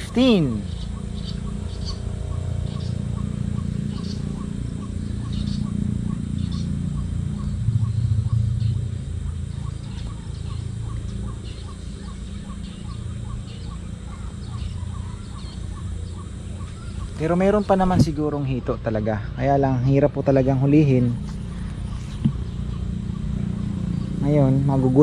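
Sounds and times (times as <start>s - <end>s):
high bird chirps: 0.0s - 18.0s
steady low rumble: 0.0s - 25.0s.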